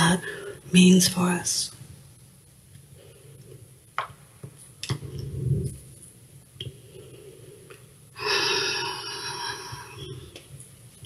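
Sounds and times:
swallowing sounds: 0:04.8 - 0:05.9.

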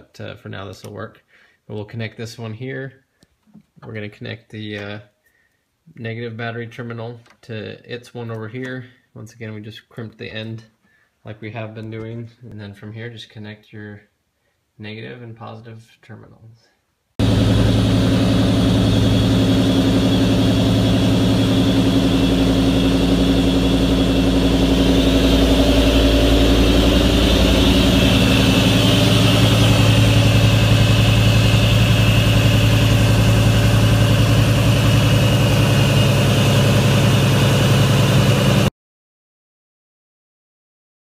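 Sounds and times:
car engine idling: 0:17.2 - 0:38.7.

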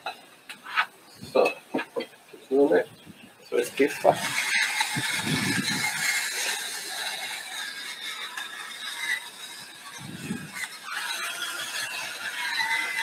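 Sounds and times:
spice mill grinding: 0:03.6 - 0:13.0.

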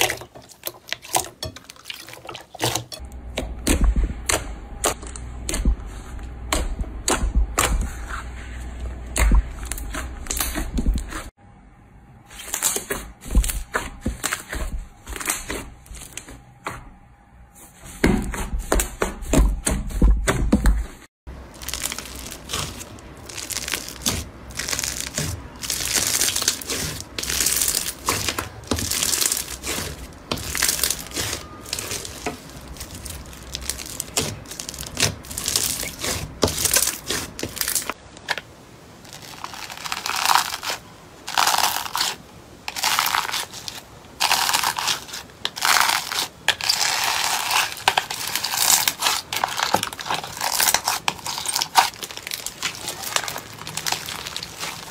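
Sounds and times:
slime crackling and crunching: 0:21.3 - 0:54.9.

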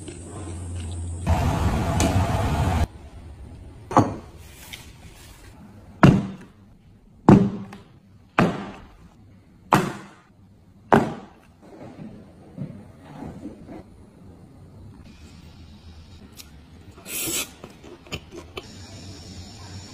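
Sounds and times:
loud hiss: 0:17.0 - 0:17.6, 0:18.6 - 0:19.9.

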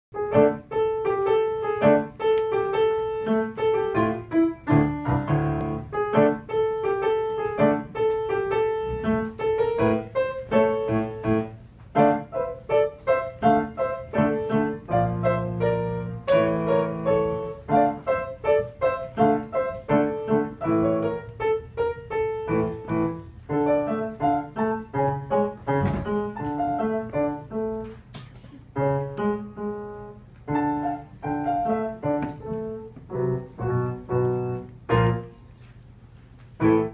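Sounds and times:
grand piano playing: 0:00.1 - 0:28.0, 0:28.8 - 0:35.5, 0:36.6 - 0:36.9.

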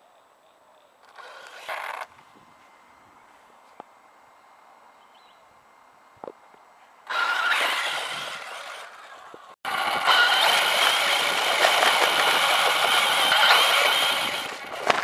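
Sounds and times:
rc car motor whine: 0:01.0 - 0:02.8, 0:07.0 - 0:15.0
tyre and wind noise: 0:01.1 - 0:03.8, 0:06.1 - 0:15.0.

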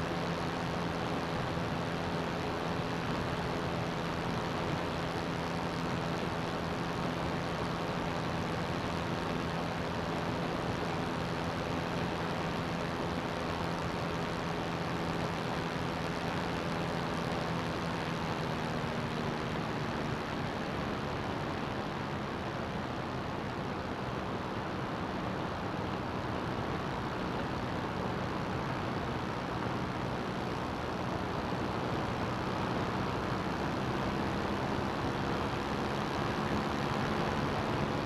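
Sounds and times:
aircraft engine droning: 0:00.0 - 0:38.0.

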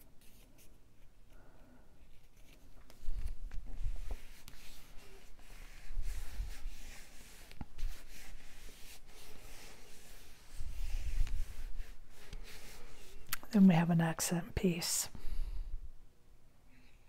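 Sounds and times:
paper rubbing and sliding: 0:02.0 - 0:13.2.

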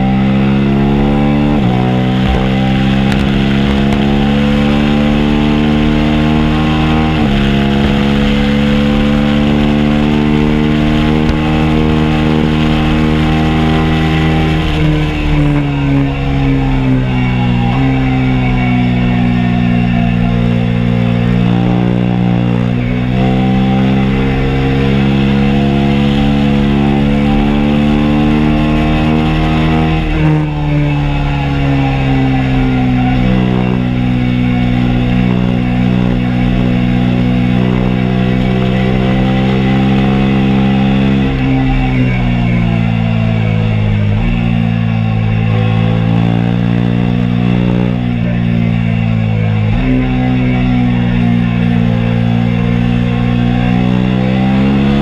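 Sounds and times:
motorcycle engine accelerating: 0:00.0 - 0:55.0
wind noise: 0:01.1 - 0:13.2.

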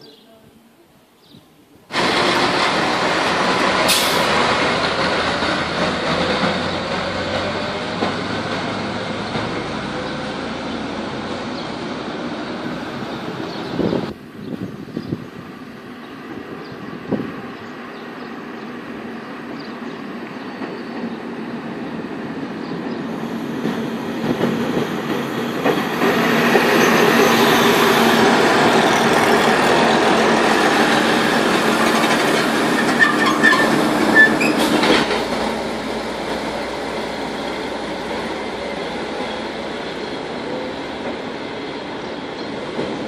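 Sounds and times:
diesel railcar engine droning: 0:01.9 - 0:43.0
train wheel clicks: 0:31.4 - 0:35.5
high wheel squeals: 0:32.3 - 0:34.9.

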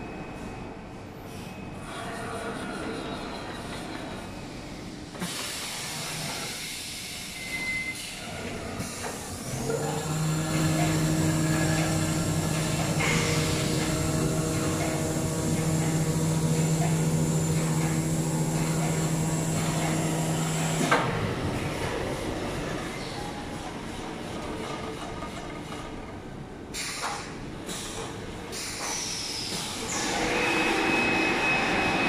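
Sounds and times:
motor hum with hiss: 0:05.1 - 0:23.3, 0:26.7 - 0:32.0.

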